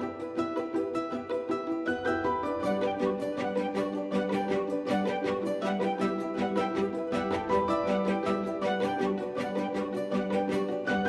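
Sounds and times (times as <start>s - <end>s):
plucked string background music: 0.0s - 11.0s.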